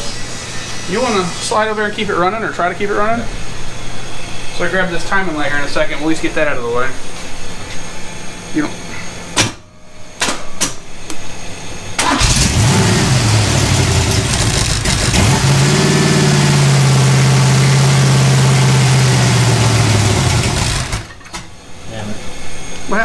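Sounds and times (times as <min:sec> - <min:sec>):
engine clicks: 0:12.0 - 0:12.7
engine revving: 0:12.0 - 0:21.2.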